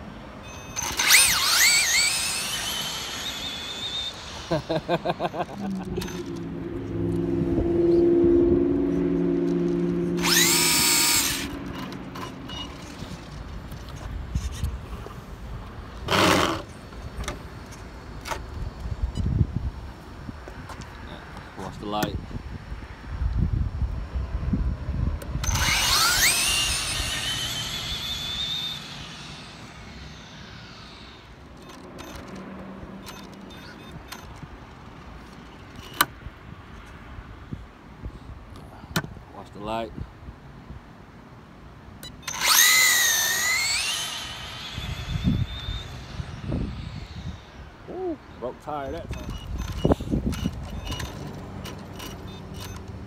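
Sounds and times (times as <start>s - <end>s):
electric motor whining: 0.5s - 14.8s, 25.2s - 34.1s, 42.0s - 48.3s.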